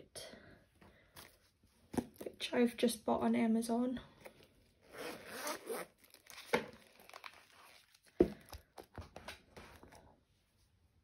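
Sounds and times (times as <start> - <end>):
wallet zip pulled open: 4.9 - 7.8.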